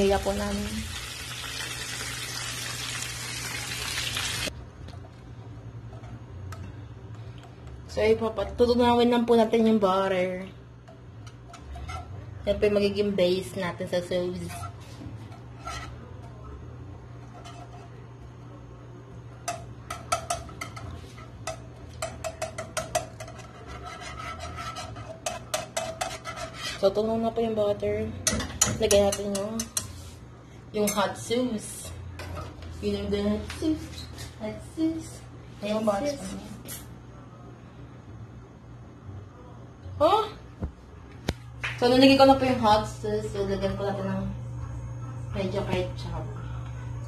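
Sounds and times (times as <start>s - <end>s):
chicken wings deep-frying sizzle: 0.0s - 4.5s
low steady hum: 0.0s - 47.0s
utensil tapping a saucepan: 19.4s - 20.8s, 21.5s - 23.5s.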